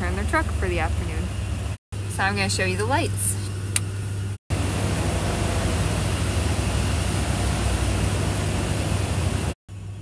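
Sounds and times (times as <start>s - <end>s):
rushing noise with low rumble: 4.5s - 9.6s.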